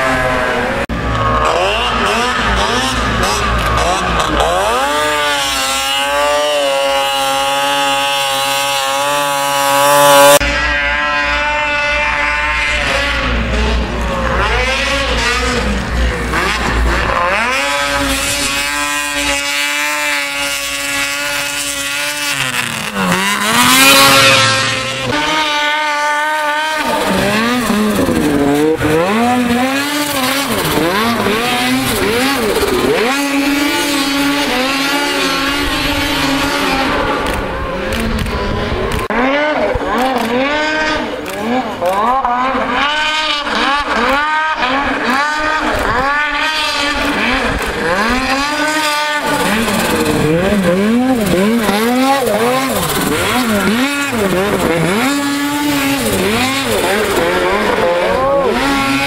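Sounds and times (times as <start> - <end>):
snowmobile engines revving: 0.0 - 59.0.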